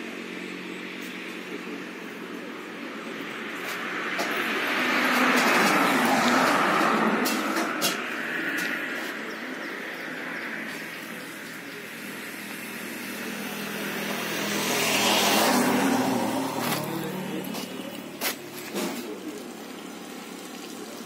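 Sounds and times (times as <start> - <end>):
road traffic noise: 0.0 - 21.0
vehicle passing close by: 3.0 - 19.4.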